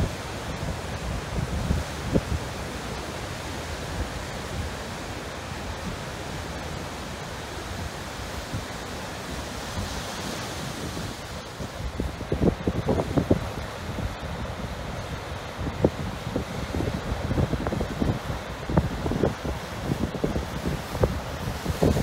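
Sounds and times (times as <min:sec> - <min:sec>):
wind buffeting microphone: 0:00.0 - 0:02.7, 0:09.6 - 0:22.0.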